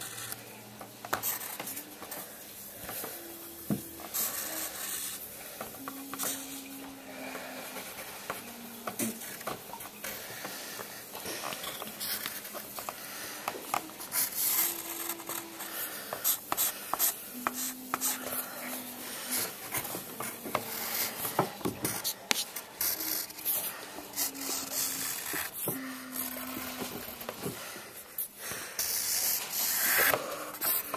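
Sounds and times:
pencil scratching on paper: 1.1s - 2.3s, 3.7s - 6.6s, 10.2s - 27.8s, 28.8s - 30.9s.

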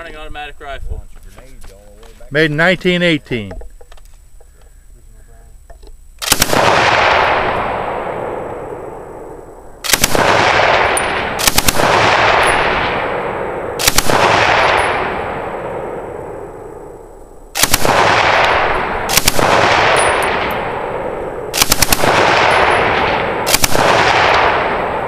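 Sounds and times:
automatic rifle firing bursts: 6.2s - 7.6s, 9.8s - 13.2s, 13.8s - 15.2s, 17.6s - 20.9s, 21.5s - 25.0s
gunshot echo: 6.2s - 25.0s.

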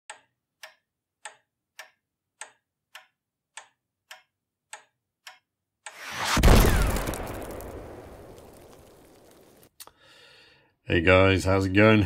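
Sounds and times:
clock ticking: 0.1s - 6.1s.

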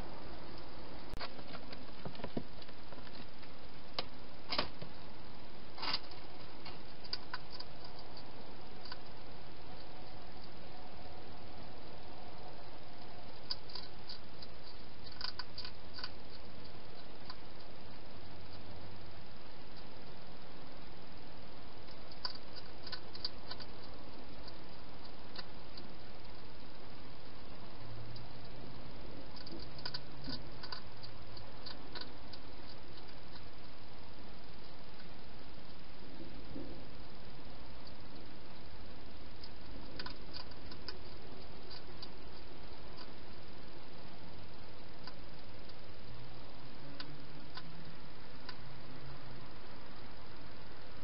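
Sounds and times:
steady hiss: 0.0s - 51.0s
hedgehog crunching food: 5.8s - 10.6s, 11.8s - 49.1s.

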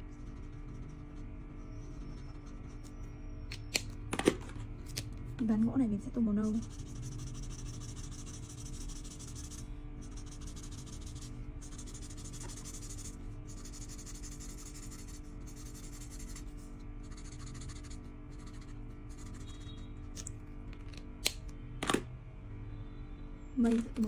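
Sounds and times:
marker scratching on paper: 0.0s - 3.0s, 6.4s - 19.8s.

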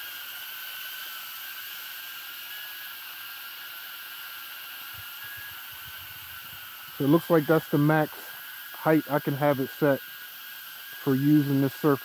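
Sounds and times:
drone propellers whining: 5.0s - 10.1s.

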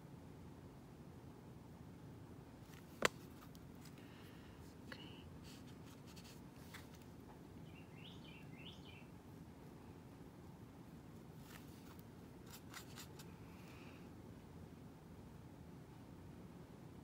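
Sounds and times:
faint high chirps: 7.6s - 9.2s
paintbrush scratching on rock: 11.5s - 13.3s.

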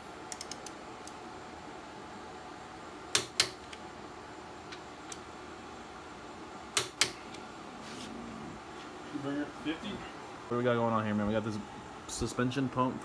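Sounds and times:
torque wrench clicks: 0.3s - 1.2s.

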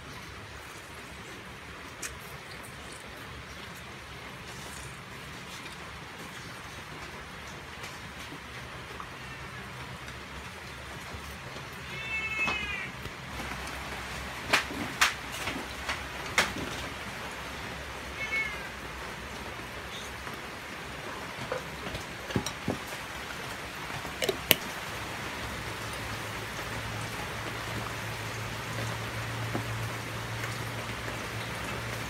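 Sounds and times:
cat meowing: 11.8s - 13.0s, 18.1s - 18.7s.

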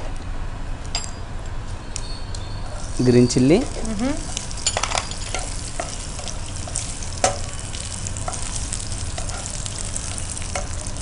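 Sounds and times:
spices sizzling in hot oil: 2.6s - 11.0s
spatula stirring: 3.7s - 11.0s.

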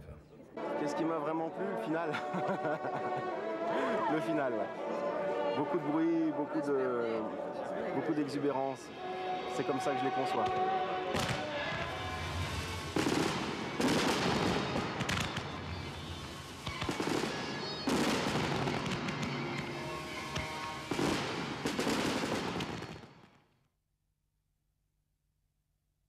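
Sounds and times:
music: 0.1s - 23.4s
fireworks crackling: 8.9s - 23.5s
firework bangs: 10.4s - 23.4s.

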